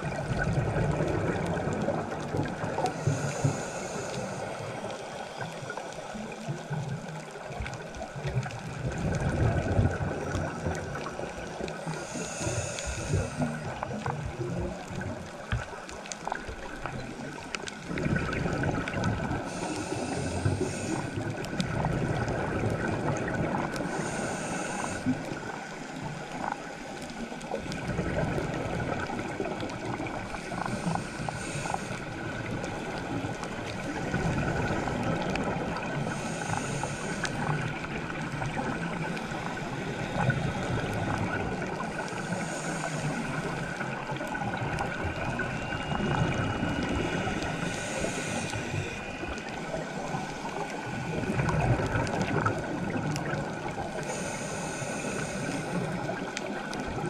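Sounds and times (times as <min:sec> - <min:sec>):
diver's exhaled bubbles rushing: 0:00.0 - 0:02.8, 0:08.6 - 0:11.3, 0:17.8 - 0:19.6, 0:21.3 - 0:23.8, 0:27.8 - 0:30.2, 0:51.0 - 0:53.7
underwater hiss: 0:00.0 - 0:57.0
faint clicks: 0:00.3 - 0:57.0.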